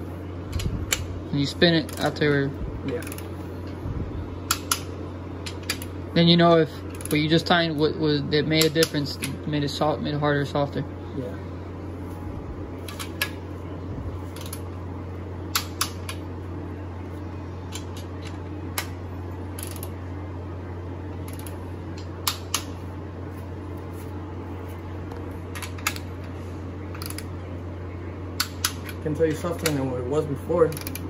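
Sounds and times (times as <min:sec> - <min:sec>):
steady low hum: 0:00.0 - 0:31.0
torque wrench clicks: 0:30.7 - 0:31.0.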